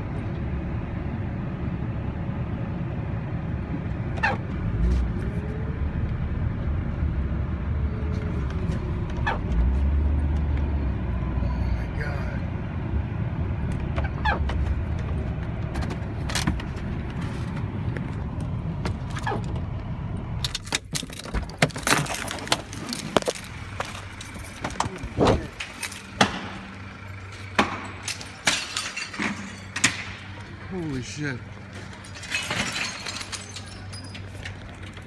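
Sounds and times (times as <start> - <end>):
car engine and road rumble: 0.0 - 35.0.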